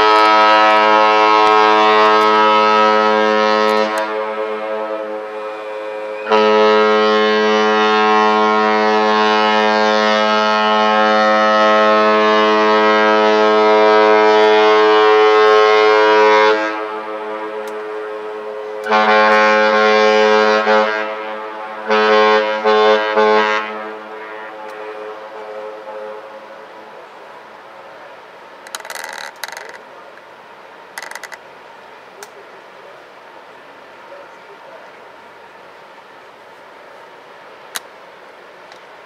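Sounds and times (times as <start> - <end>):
ship horn blasts: 0.0 - 28.2.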